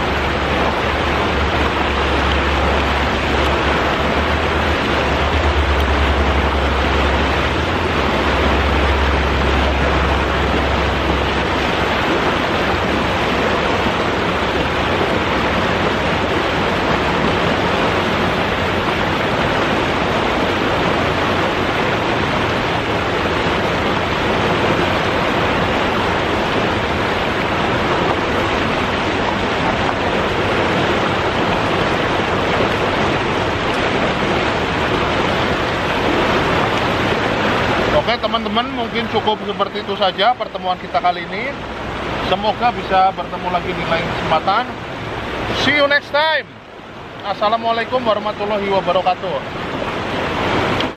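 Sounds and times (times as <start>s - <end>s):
low rumble: 0.0s - 38.0s
water rushing over rocks: 0.0s - 50.9s.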